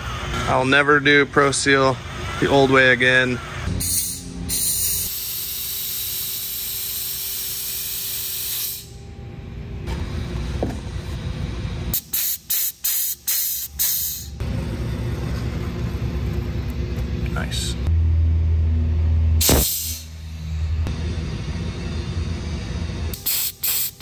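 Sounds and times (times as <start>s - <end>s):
compressed air blow gun hissing: 19.4s - 20.1s, 23.2s - 24.0s.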